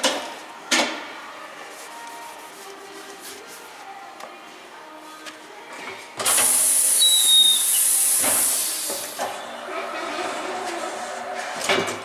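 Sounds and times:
compressed air hissing into tire: 6.3 - 9.2.

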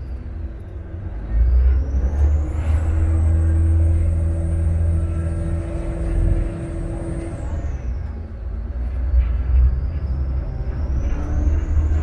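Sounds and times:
boat diesel engine rumbling: 0.0 - 12.0
constant hum: 0.0 - 12.0.

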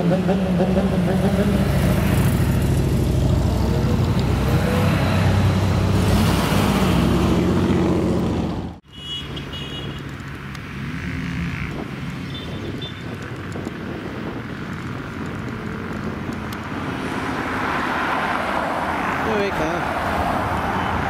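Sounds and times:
motorcycle and car engines passing: 0.0 - 21.0
wind noise: 11.4 - 18.2.

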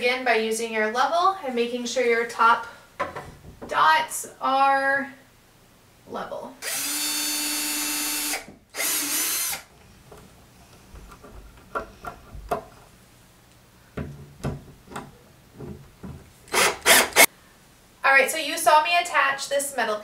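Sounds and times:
cordless drill whirring: 6.6 - 9.7, 16.5 - 17.3.

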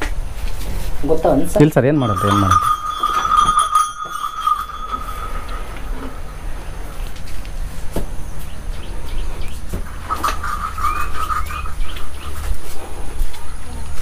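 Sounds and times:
small birds chirping: 4.2 - 7.5, 8.2 - 12.9.

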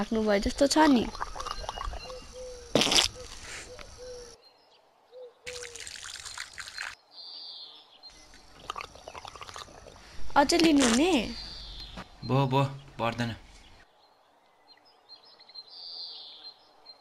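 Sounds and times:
water poured splashing onto hands: 5.5 - 7.0.

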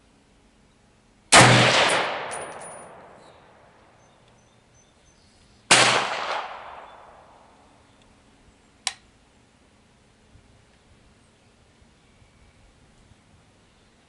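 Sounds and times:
rifle shots echoing: 1.3 - 3.8, 5.7 - 7.6.

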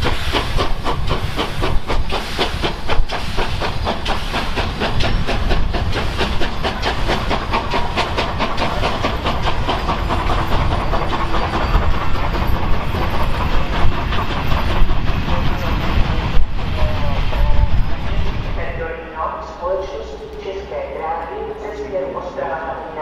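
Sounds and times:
train hiss and rumble: 0.0 - 23.0
train wheel beats: 0.0 - 23.0.

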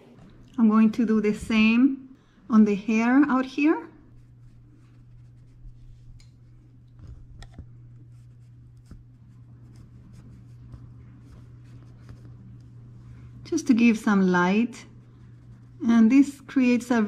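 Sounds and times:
low steady hum: 0.0 - 17.0
paintbrush brushing on canvas: 4.1 - 6.2, 8.0 - 13.1, 14.9 - 16.5.

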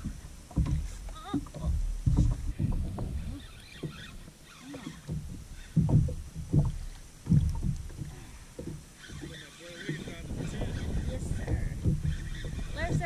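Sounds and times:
water slapping kayak hull: 0.0 - 13.0.

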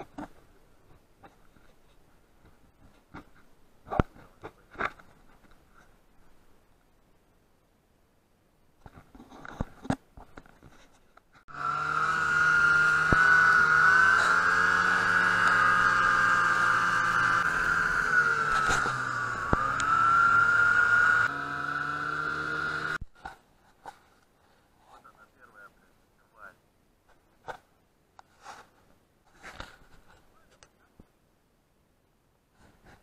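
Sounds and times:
snowmobile engine whining: 11.5 - 23.0.

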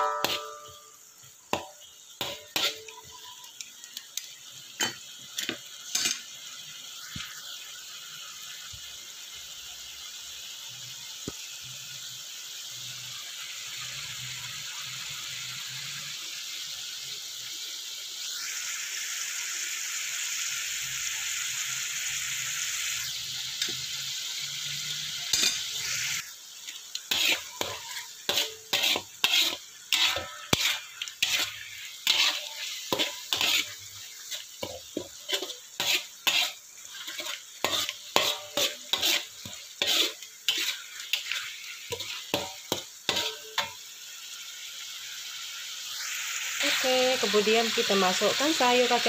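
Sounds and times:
metal spatula scraping a wok: 0.0 - 3.6, 4.2 - 6.4, 22.2 - 43.8
meat sizzling in a wok: 0.0 - 49.0.

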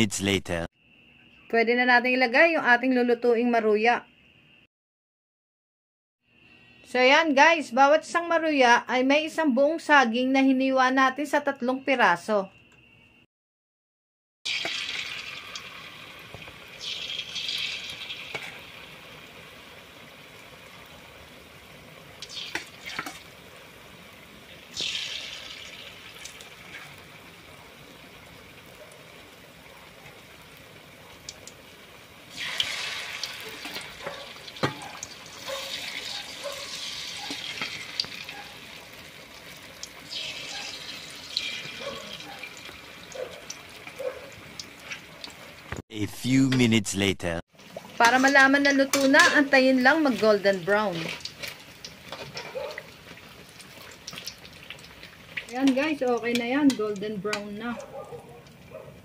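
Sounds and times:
fritters deep-frying in oil: 14.5 - 45.8, 47.5 - 57.7.

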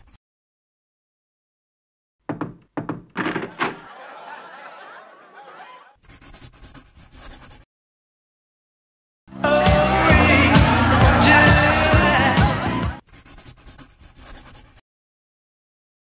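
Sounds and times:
knocks on a door: 2.3 - 3.8
people laughing: 3.3 - 6.0, 9.6 - 13.0
overlapping voices: 3.5 - 6.0, 9.3 - 13.0.

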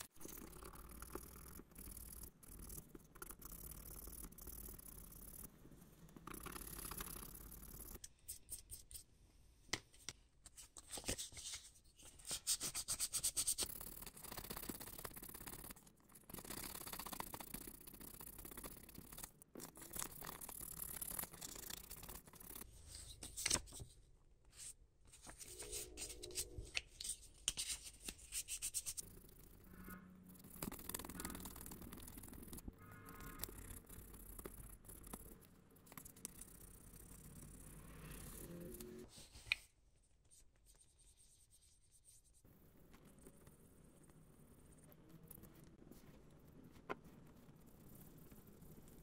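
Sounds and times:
rubbing and scraping on toy parts: 0.0 - 9.1, 9.7 - 37.8.

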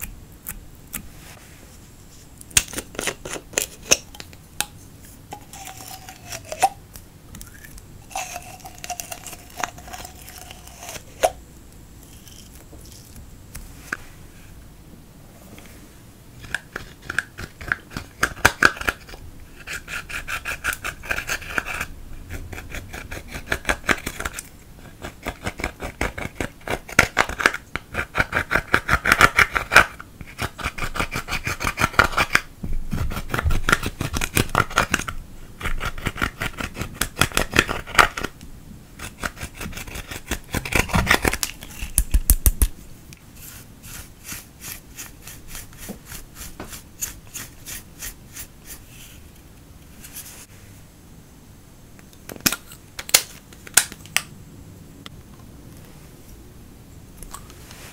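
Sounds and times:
metal tool scraping powder: 4.8 - 6.8, 8.0 - 11.4, 12.0 - 13.1, 43.4 - 49.2
makeup brush brushing: 5.0 - 6.7, 8.0 - 11.4, 43.3 - 49.2.

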